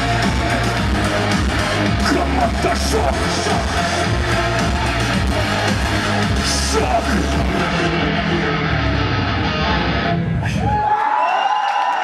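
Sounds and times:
bass guitar: 0.0 - 10.8
drums: 0.0 - 10.9
electric guitar: 7.0 - 10.7.

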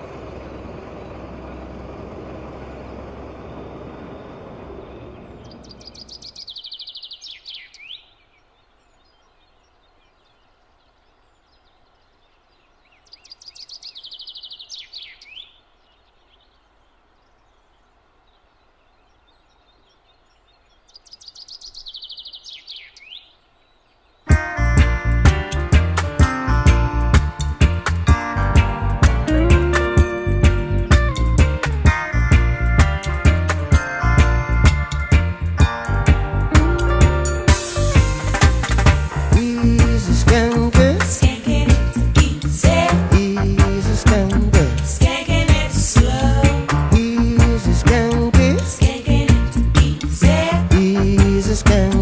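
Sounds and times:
tractor driving past: 0.0 - 6.9, 24.6 - 52.0
songbird trilling: 3.4 - 24.4
music: 24.3 - 52.0.

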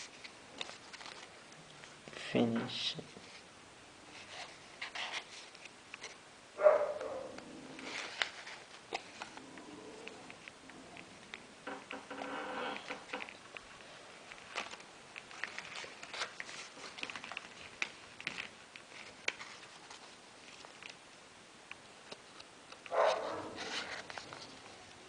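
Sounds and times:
paper rustling and crinkling: 0.0 - 1.4, 4.1 - 6.2, 7.8 - 9.4, 12.7 - 21.0, 22.1 - 25.0.

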